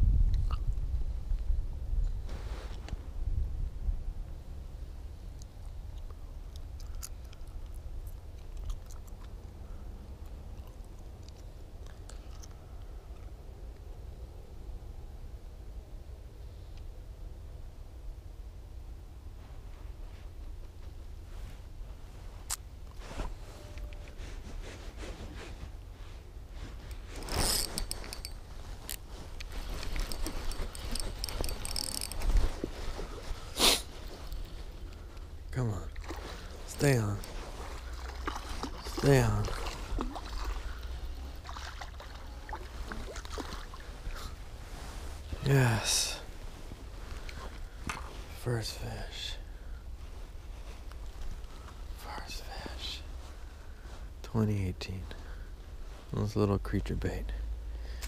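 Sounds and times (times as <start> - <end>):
wind rumble on microphone: 0.0 - 6.6
jacket sleeve rustling on microphone: 19.4 - 35.4, 36.0 - 41.5, 42.6 - 48.4
fishing gear clicks: 26.9 - 35.2
fishing reel clicks: 30.7 - 32.2.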